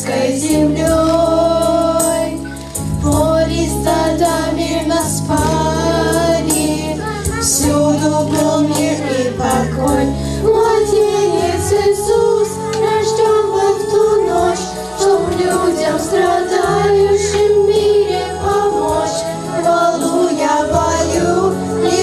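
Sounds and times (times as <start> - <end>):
girls singing: 0.0 - 22.0
instrumental accompaniment: 0.0 - 22.0.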